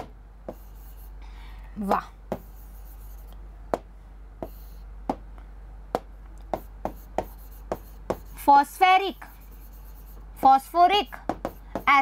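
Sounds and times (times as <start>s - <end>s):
low electrical hum: 0.0s - 12.0s
pen tapping on a surface: 6.0s - 8.3s, 11.2s - 12.0s.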